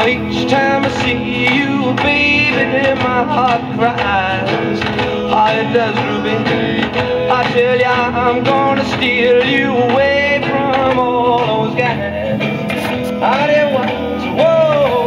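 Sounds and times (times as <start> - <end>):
country rock song on record player: 0.0 - 15.0.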